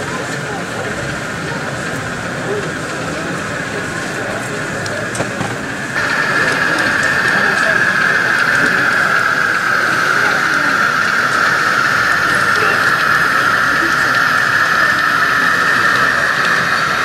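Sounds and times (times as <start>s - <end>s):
model train motor whine: 0.1s - 17.0s.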